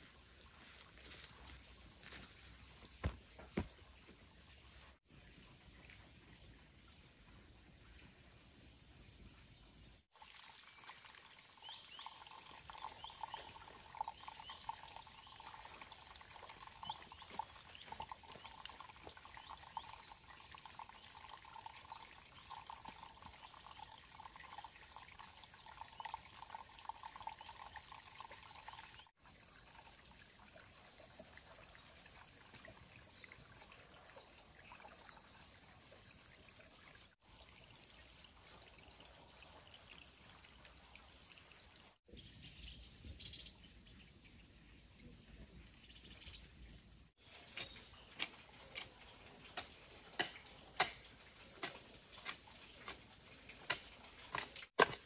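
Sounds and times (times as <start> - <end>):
insects chirring: 0.0 - 6.0, 10.2 - 30.8, 47.2 - 55.0
water trickling and splashing: 0.0 - 42.1, 46.8 - 55.0.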